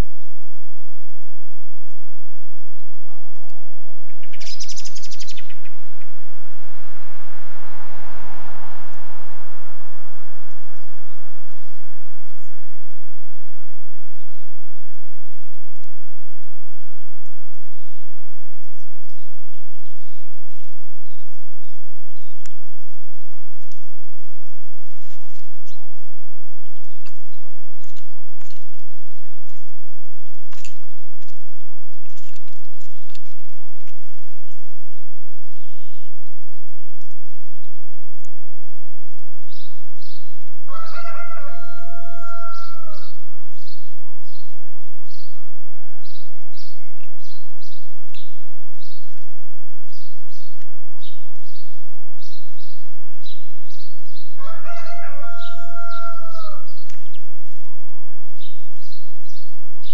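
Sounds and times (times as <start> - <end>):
high bird chirps: 4.1 - 6.2
rooster crowing: 40.6 - 43.2, 45.1 - 47.3, 54.4 - 56.8.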